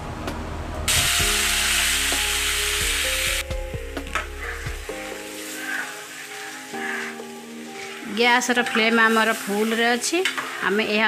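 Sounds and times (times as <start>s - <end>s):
batter sizzling in hot oil: 0.9s - 11.0s.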